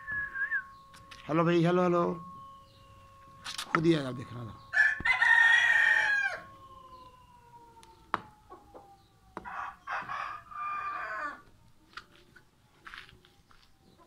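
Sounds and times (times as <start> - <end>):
rooster crowing: 4.6 - 11.5.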